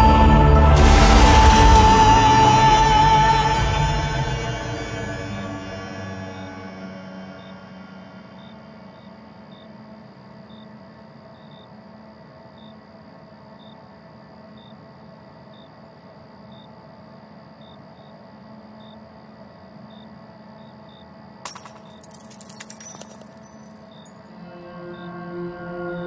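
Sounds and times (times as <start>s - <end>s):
low musical drone: 0.0s - 8.9s, 24.3s - 26.0s
metallic jingling and clinking: 21.5s - 24.2s.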